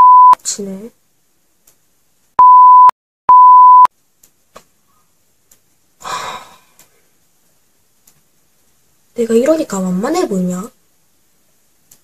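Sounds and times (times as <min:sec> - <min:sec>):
censor bleeps: 0:00.0 - 0:00.4, 0:02.4 - 0:03.9.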